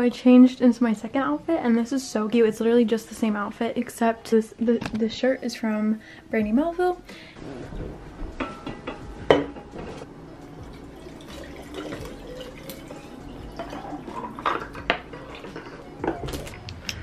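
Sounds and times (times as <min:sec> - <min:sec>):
water pouring into metal bottle: 0:10.6 - 0:15.5.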